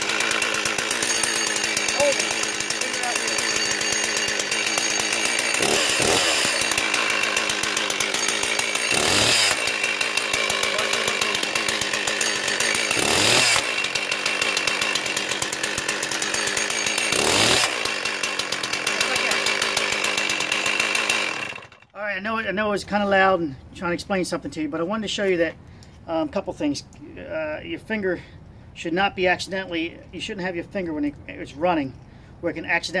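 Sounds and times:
chainsaw engine idling and revving: 0:00.0 - 0:22.0.

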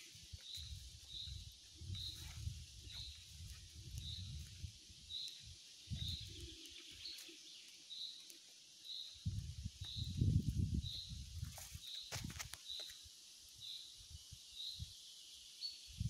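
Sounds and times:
footsteps on dirt path: 0:11.4 - 0:13.0.

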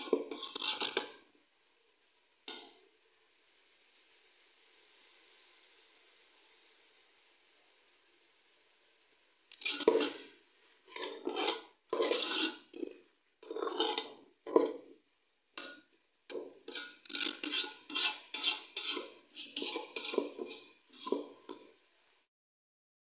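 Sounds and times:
spoon scraping metal pot: 0:00.0 - 0:01.2, 0:09.5 - 0:15.0, 0:15.6 - 0:21.8.

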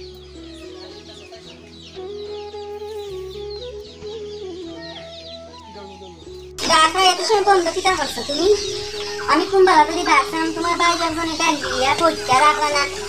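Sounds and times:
chicks peeping: 0:00.0 - 0:13.0
soft background music: 0:00.0 - 0:13.0.

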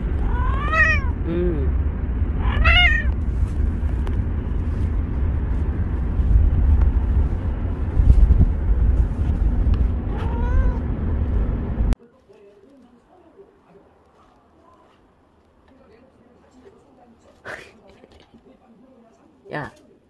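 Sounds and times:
steady low rumble: 0:00.0 - 0:12.0
cat meowing: 0:00.2 - 0:01.2, 0:02.4 - 0:03.1, 0:10.1 - 0:10.8.

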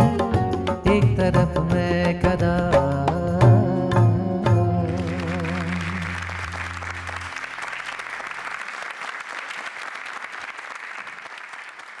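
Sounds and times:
held music notes: 0:03.4 - 0:08.0
audience applauding: 0:04.9 - 0:12.0.

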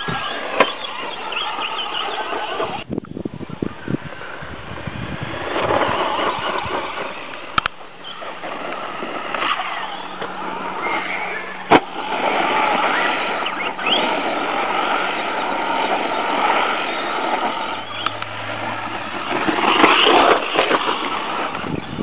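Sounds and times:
electric motor whining: 0:04.7 - 0:22.0.

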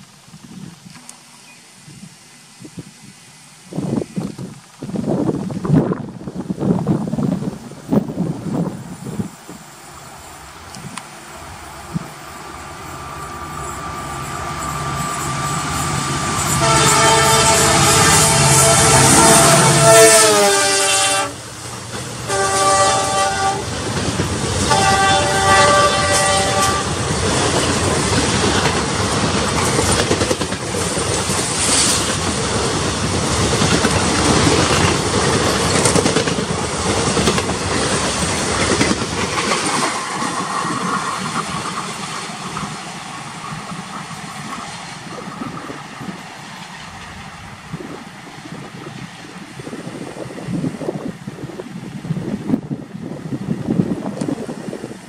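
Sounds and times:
locomotive horn: 0:13.7 - 0:21.4, 0:22.2 - 0:23.7, 0:24.6 - 0:27.0
train wheels clattering over joints: 0:26.9 - 0:45.8.

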